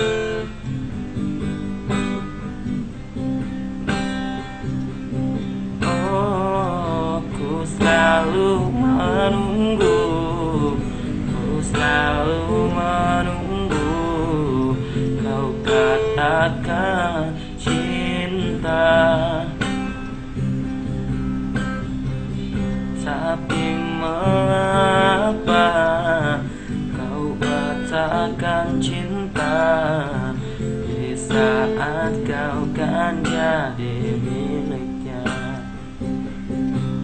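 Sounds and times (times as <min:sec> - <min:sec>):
strummed acoustic guitar: 0:00.0 - 0:37.0
man singing ballad: 0:05.8 - 0:20.2, 0:22.9 - 0:35.9.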